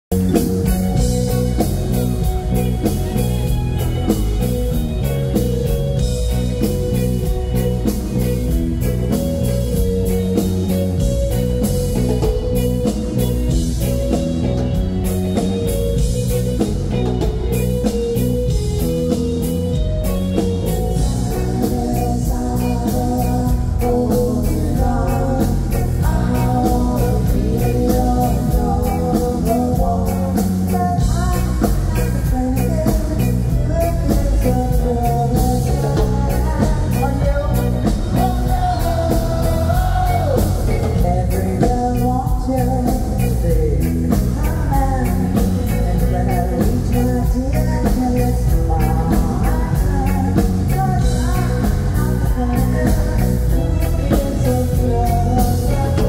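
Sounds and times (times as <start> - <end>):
rock band playing: 0.1 - 56.0
woman singing lead vocal: 20.4 - 56.0.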